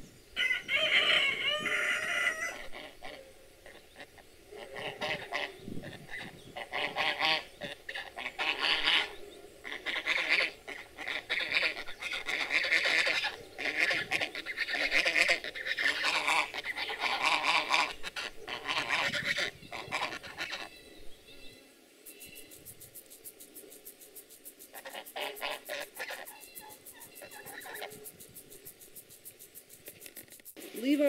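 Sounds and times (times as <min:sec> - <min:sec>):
geese honking: 0:00.4 - 0:21.5, 0:24.7 - 0:28.1.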